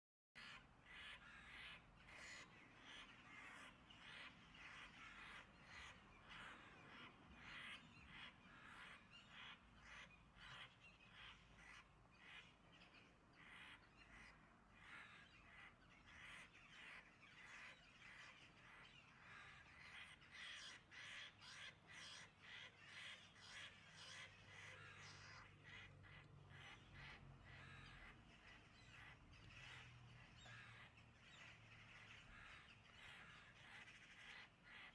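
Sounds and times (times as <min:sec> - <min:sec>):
crow cawing: 0:19.1 - 0:34.9.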